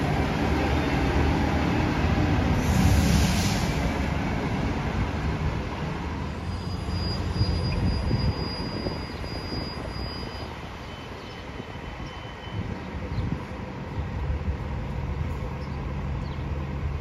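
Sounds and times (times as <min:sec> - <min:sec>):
bus diesel engines rumbling: 0:00.0 - 0:17.0
air hiss: 0:02.6 - 0:03.9.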